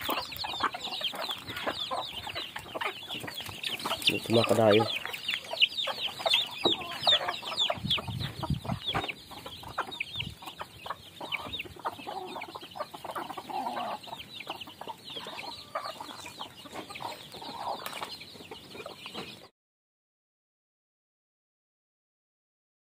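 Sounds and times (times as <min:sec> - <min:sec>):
chicks peeping: 0:00.0 - 0:19.5
hens clucking: 0:00.0 - 0:19.5.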